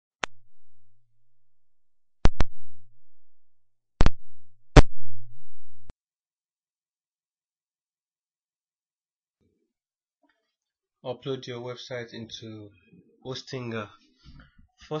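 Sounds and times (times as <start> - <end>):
audio jack pops and crackles: 0.2 - 0.7, 2.2 - 2.9, 4.0 - 5.9.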